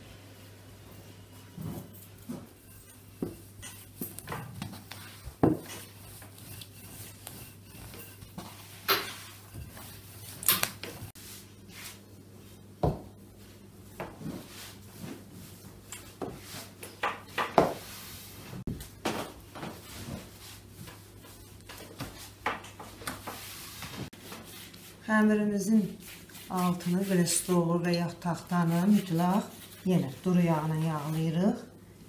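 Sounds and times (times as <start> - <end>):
rolling pin on wooden board: 3.2 - 11.0.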